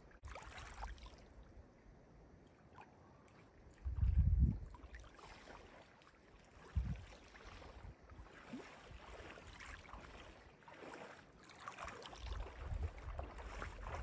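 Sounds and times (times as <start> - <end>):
wind buffeting microphone: 3.8 - 4.8, 6.6 - 9.3, 12.2 - 14.0
waves lapping on stony shore: 4.7 - 14.0.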